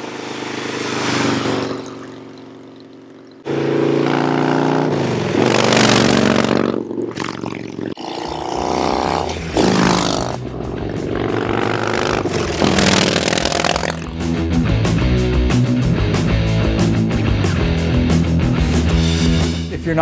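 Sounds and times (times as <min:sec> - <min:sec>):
motorcycle accelerating past: 0:00.0 - 0:14.3.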